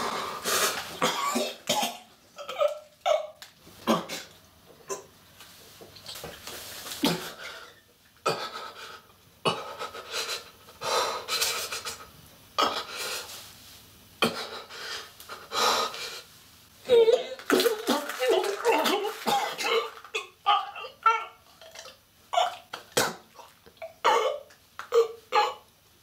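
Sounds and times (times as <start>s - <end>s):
man choking and wheezing: 7.0s - 13.3s, 14.2s - 16.0s, 16.9s - 25.7s.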